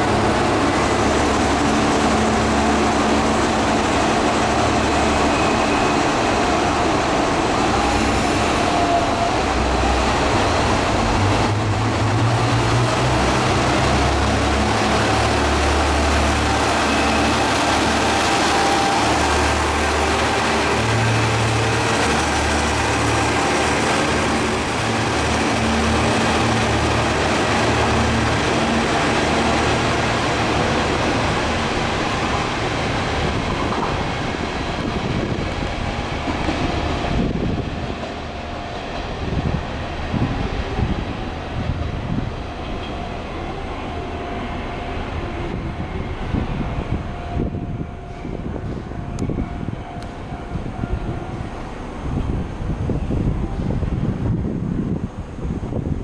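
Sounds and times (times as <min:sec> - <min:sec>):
diesel railcar engines rumbling: 0:00.0 - 0:56.0.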